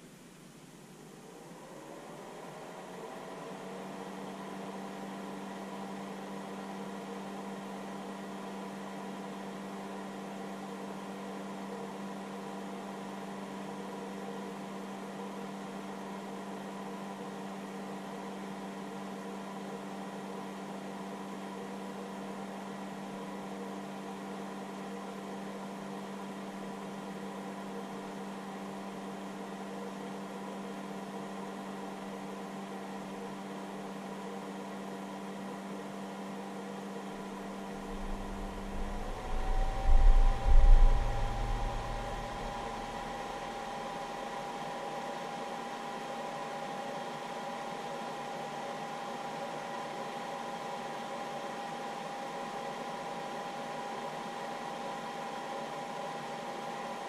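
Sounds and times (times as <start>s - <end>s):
cooling fan humming: 37.0s - 44.2s.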